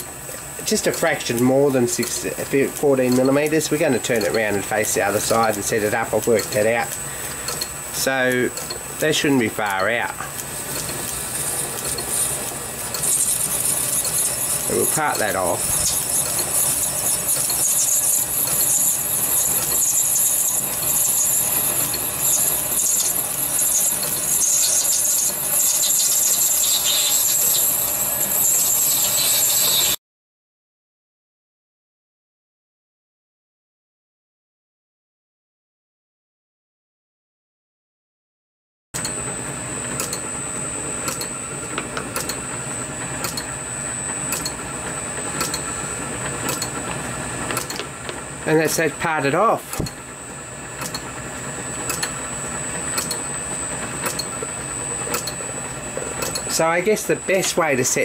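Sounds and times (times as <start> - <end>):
lathe running: 0.0 - 30.0, 39.0 - 58.0
lathe tool squealing in metal: 10.8 - 30.0.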